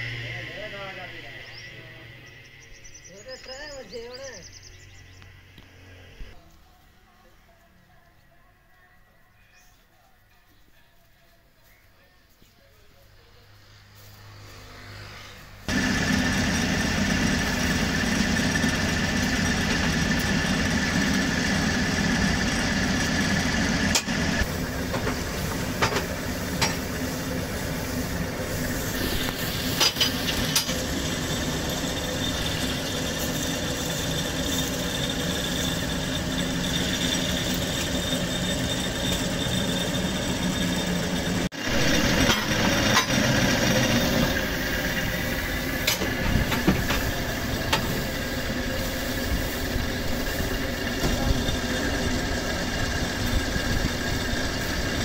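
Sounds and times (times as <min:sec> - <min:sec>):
baling press humming and whining: 0:14.4 - 0:55.0.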